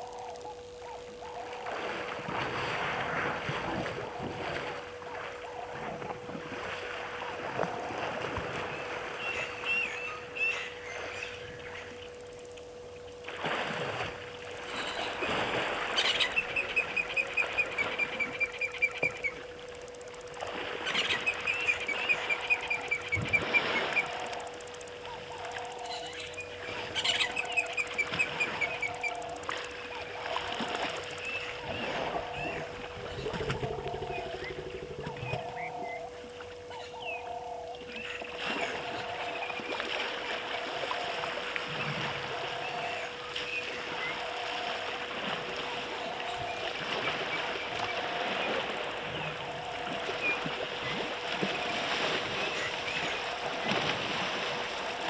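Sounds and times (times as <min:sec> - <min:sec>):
elephant splashing through water: 0:01.6 - 0:09.9
bird chirping calls: 0:20.9 - 0:29.6.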